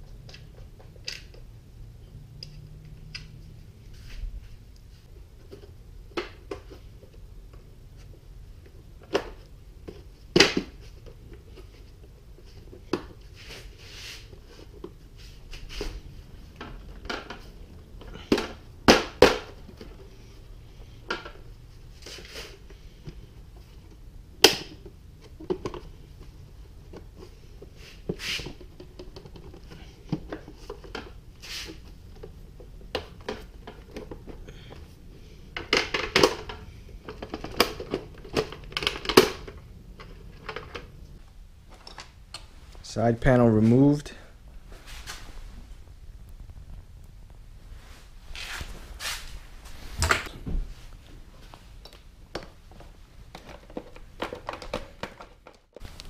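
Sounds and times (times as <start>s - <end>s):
plastic panels clicking and knocking: 35.5s - 40.9s, 52.3s - 55.8s.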